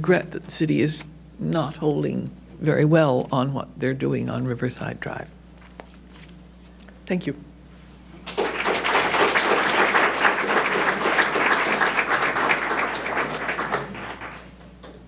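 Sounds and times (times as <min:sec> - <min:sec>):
audience applauding: 0:08.2 - 0:15.0.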